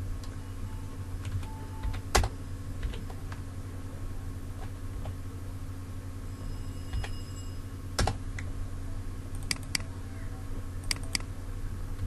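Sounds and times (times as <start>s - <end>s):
steady low hum: 0.0s - 12.0s
keyboard key clicks: 9.4s - 9.9s, 10.9s - 11.3s.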